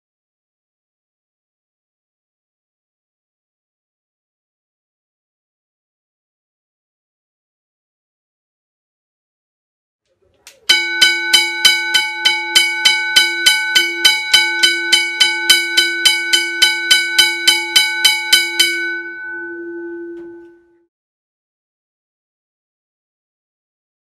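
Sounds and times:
level-crossing bell ringing: 10.7 - 20.9.

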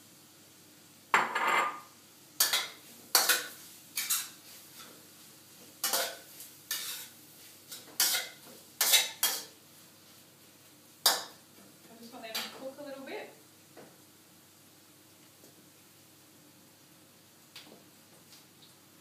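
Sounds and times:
utensil scraping and knocking wok: 2.4 - 5.1, 5.7 - 9.6.

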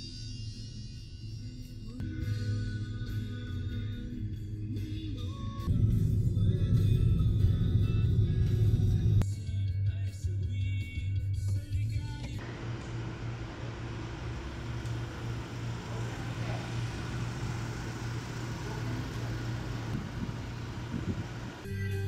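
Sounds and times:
car engine hum: 5.3 - 9.2, 12.4 - 22.0
road noise hiss: 12.4 - 21.7.

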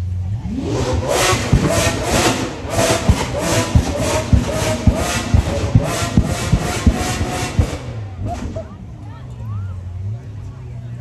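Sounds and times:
sports car engine revving: 0.0 - 9.2
exhaust pops and bangs: 1.1 - 8.8.

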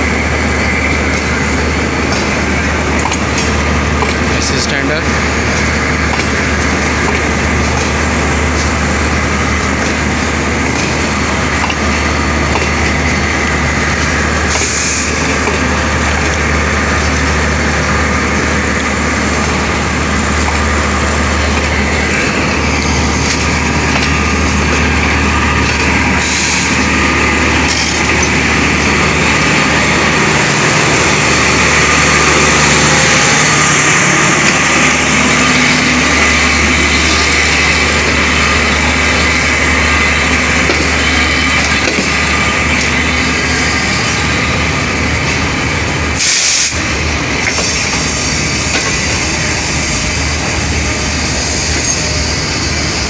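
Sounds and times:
low diesel engine drone: 0.0 - 53.0
air hisses: 46.2 - 47.0.

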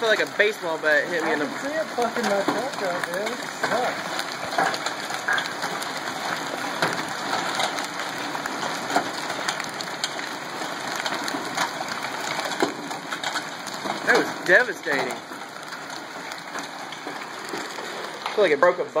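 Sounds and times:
hailstones cracking on hard surfaces: 0.0 - 19.0
hiss of rain and hail: 0.0 - 19.0.

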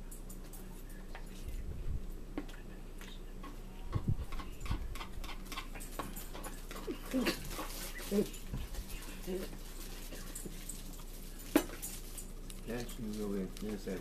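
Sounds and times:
soft clicks and smacks: 2.3 - 7.0
dog whining: 6.8 - 9.5.

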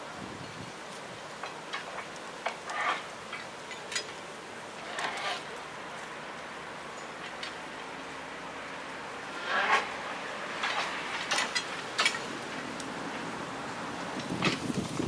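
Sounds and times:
background hiss: 0.0 - 15.0
sharp clicks and knocks: 1.4 - 4.2, 10.5 - 12.9.

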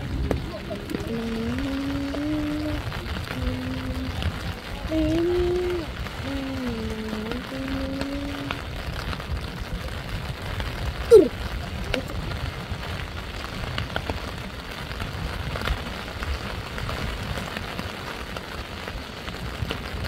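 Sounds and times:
rain patter: 0.0 - 20.0
wind rumble on microphone: 0.0 - 20.0.

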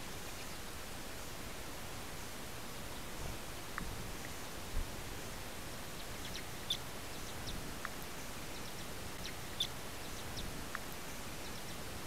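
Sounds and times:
background hiss: 0.0 - 12.0
bird chip calls: 5.9 - 11.8.

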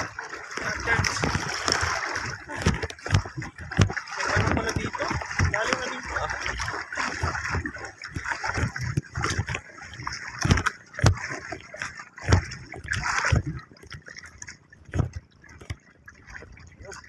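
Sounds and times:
water splashing against a hull: 0.0 - 17.0
knocks and thumps on wood: 0.6 - 5.9, 6.6 - 9.7, 10.4 - 11.4, 12.2 - 14.1, 14.9 - 15.8.

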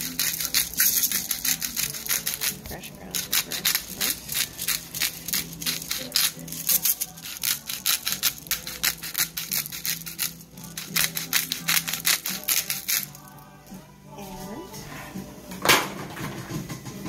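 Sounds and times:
pepper mill grinding: 0.0 - 13.6.

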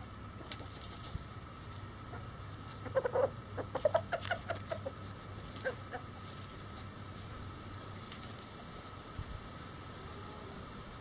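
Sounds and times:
chickens clucking: 2.0 - 6.8.

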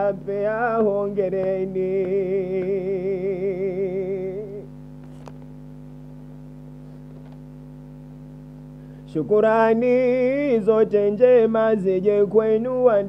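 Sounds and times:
man singing with vibrato: 0.0 - 4.7, 9.1 - 13.0
low electrical hum: 0.0 - 13.0.

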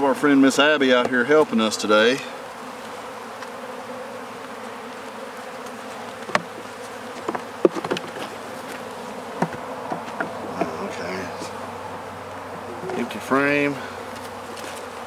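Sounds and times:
bees buzzing: 0.0 - 15.0
wooden frames knocking: 6.2 - 8.4, 9.4 - 11.6, 12.5 - 13.3.

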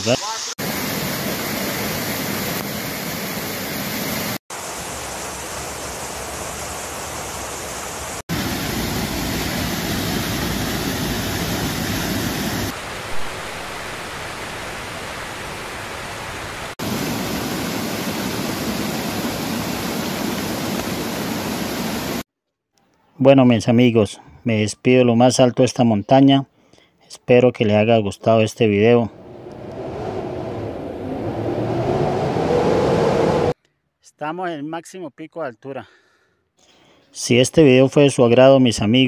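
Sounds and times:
waterfall rushing: 0.0 - 22.2.

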